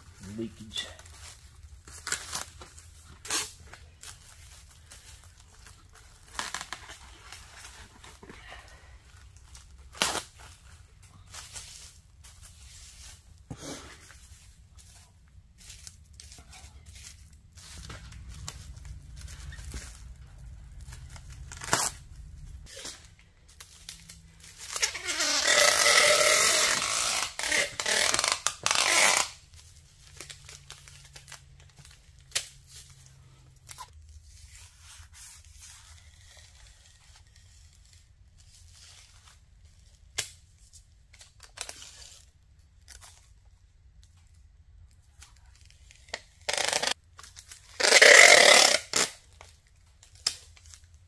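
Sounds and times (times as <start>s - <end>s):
plastic wrap crinkling: 0.0s - 51.0s
plastic film tearing screech: 6.3s - 7.0s, 21.4s - 22.1s, 24.5s - 29.4s, 46.1s - 49.4s.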